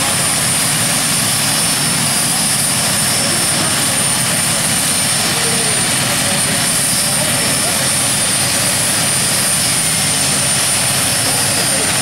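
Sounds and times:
tractor engines running loudly: 0:00.0 - 0:12.0.

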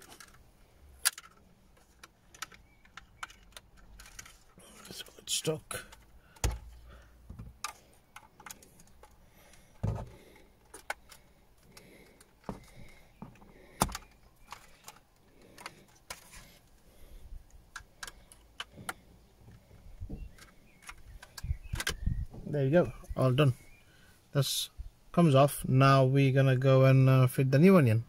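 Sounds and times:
plastic clicks and rattles: 0:00.0 - 0:22.1.

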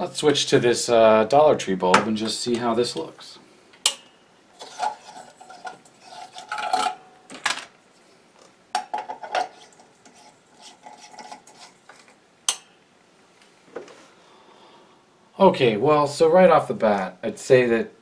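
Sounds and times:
bulb bases scraping and clinking: 0:03.8 - 0:07.1, 0:08.8 - 0:12.8.

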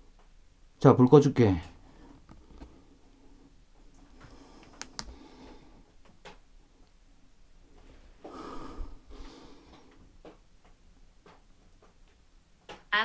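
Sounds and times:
breathy hiss: 0:07.8 - 0:10.1.

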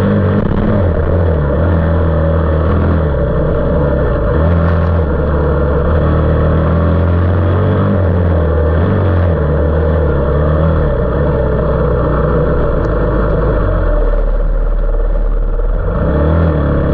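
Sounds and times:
motorcycle engine running hard: 0:00.0 - 0:16.9
wind and road noise: 0:00.0 - 0:16.9.

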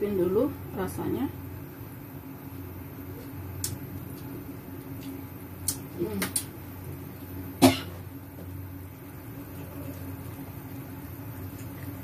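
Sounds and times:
steady low hum: 0:00.0 - 0:12.0
person coughing: 0:07.6 - 0:08.0.

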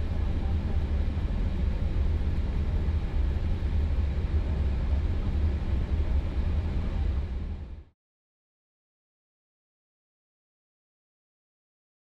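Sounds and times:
low rumble of taxiing airliner: 0:00.0 - 0:08.0.

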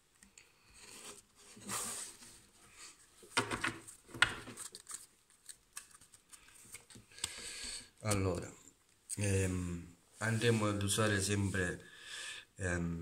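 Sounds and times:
cards being shuffled: 0:03.4 - 0:07.4.

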